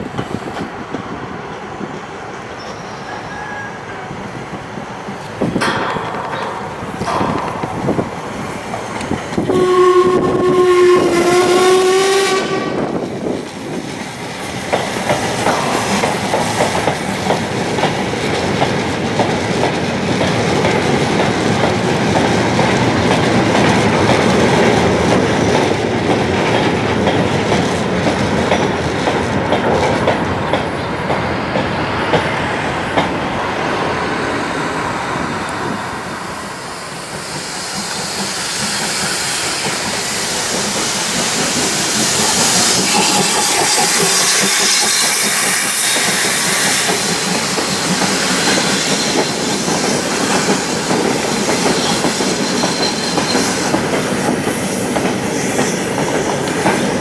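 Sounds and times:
steam locomotive whistle: 0:02.6 - 0:04.2, 0:09.4 - 0:13.0.

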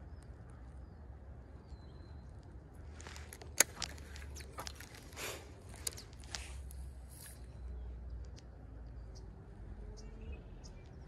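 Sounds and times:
faint bird chirps: 0:00.0 - 0:02.6, 0:07.1 - 0:11.0
fishing reel clicks and rustles: 0:03.0 - 0:07.5.

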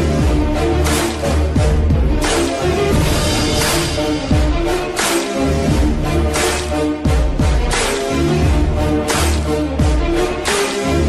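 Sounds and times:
electronic music with heavy bass: 0:00.0 - 0:11.0
rushing sweep: 0:02.6 - 0:05.8.

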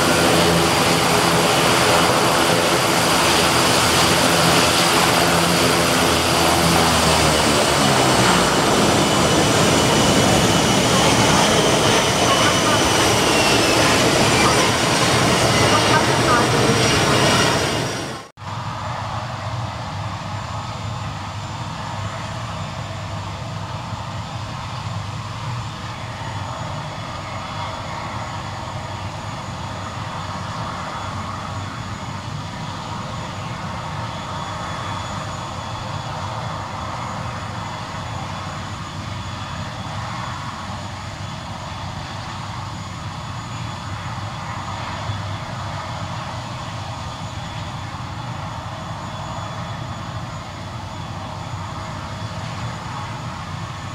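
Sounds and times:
high turbine whine: 0:00.0 - 0:53.9
turboprop engine rumble: 0:00.0 - 0:53.9.

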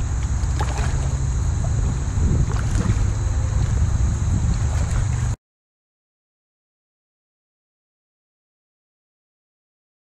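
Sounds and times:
faint splashes: 0:00.0 - 0:05.4
water sloshing around wading legs: 0:00.0 - 0:05.4
wind on microphone: 0:00.0 - 0:05.4.

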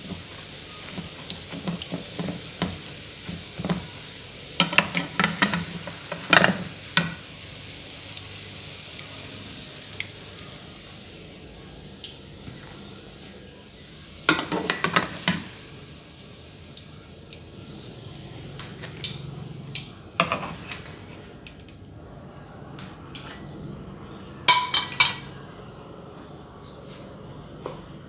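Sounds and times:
bread frying in oil: 0:00.0 - 0:25.8
metal utensils clattering on plates: 0:04.6 - 0:07.2, 0:14.3 - 0:15.5, 0:24.5 - 0:25.3.

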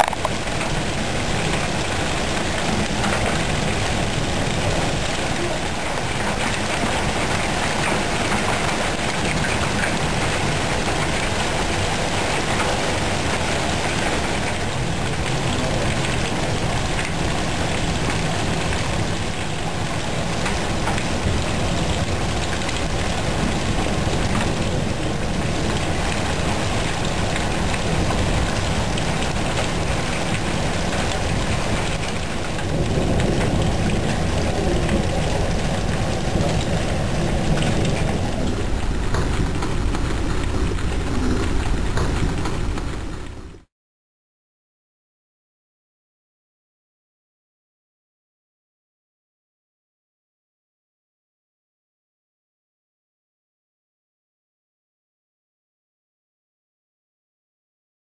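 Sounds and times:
hail falling: 0:00.0 - 0:43.6.

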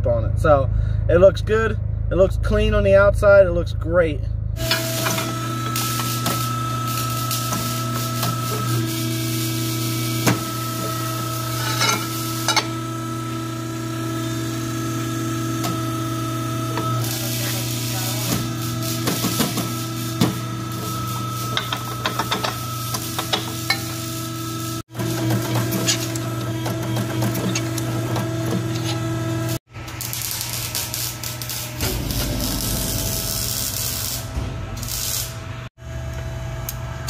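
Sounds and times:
hydraulic pipe bender humming: 0:04.6 - 0:37.0.

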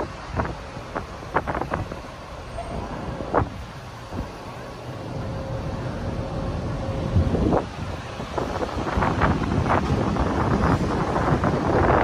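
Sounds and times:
wind on microphone: 0:00.0 - 0:02.1, 0:06.9 - 0:12.0
road traffic rumble: 0:00.0 - 0:12.0.

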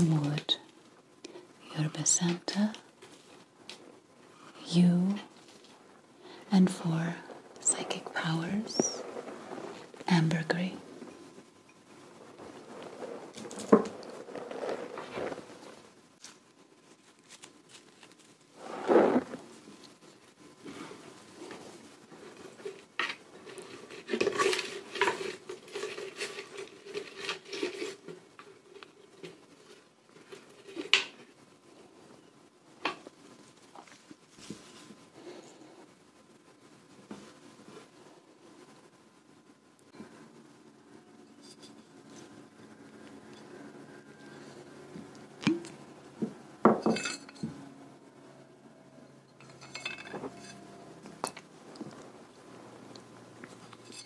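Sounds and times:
light crackling of crumbling: 0:05.2 - 0:40.1, 0:49.0 - 0:54.0
glass bottle clinking: 0:46.7 - 0:47.5
small items clinking at a pot: 0:46.7 - 0:47.6, 0:49.2 - 0:51.5.

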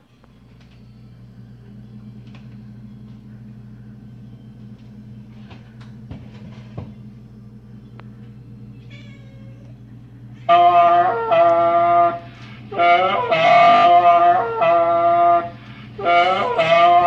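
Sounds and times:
speakers electrical hum: 0:00.0 - 0:17.0
high wavering cry: 0:08.7 - 0:17.0.

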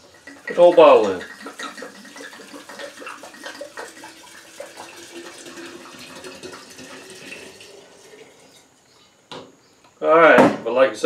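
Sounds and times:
liquid pouring through a funnel: 0:00.0 - 0:08.8.

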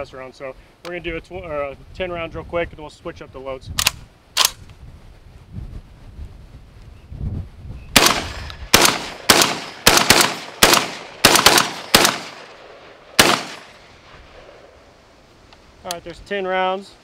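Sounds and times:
shotgun shots: 0:08.0 - 0:14.7.

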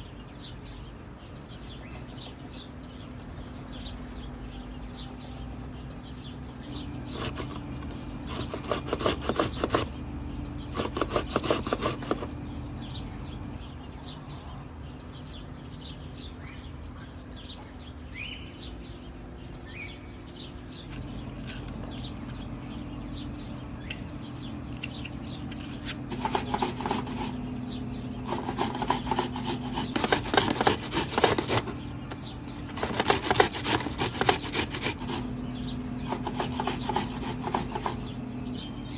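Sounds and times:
metal grater rasping: 0:07.1 - 0:10.0, 0:10.7 - 0:12.4, 0:24.8 - 0:27.5, 0:28.2 - 0:38.1.

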